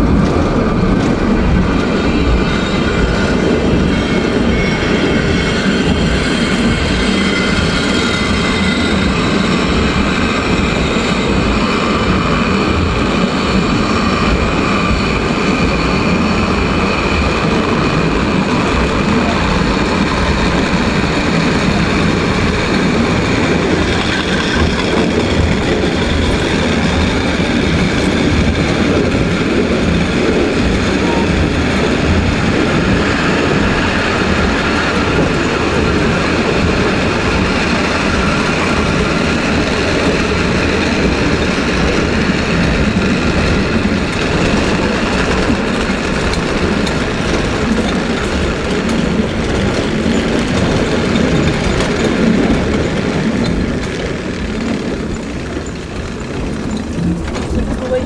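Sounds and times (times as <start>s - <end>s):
wheels rattling on rails: 0.0s - 58.0s.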